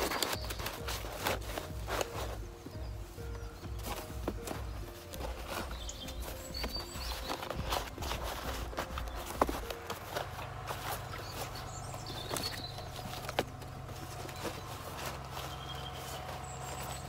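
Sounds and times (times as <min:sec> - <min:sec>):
cardboard rustling and scraping: 0:00.0 - 0:17.0.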